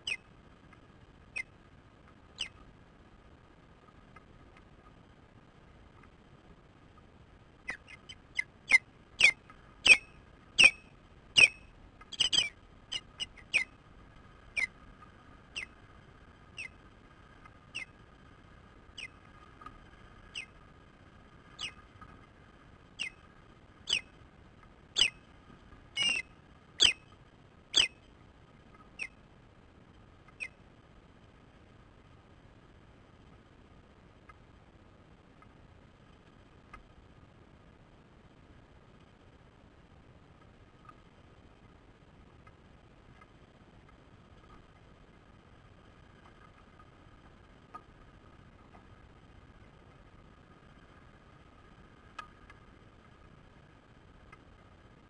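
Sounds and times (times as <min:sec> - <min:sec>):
bird whistled chirps: 0:08.7 - 0:13.7, 0:23.9 - 0:24.1, 0:25.0 - 0:25.2, 0:26.0 - 0:27.0.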